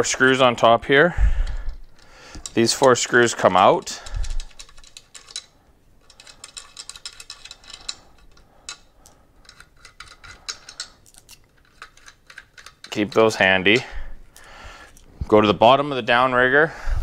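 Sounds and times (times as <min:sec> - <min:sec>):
small screws clicking: 0:01.5 - 0:15.0.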